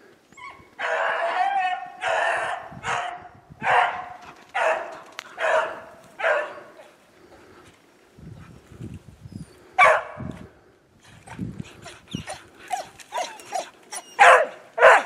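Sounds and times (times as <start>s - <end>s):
dogs baying: 11.2s - 15.0s.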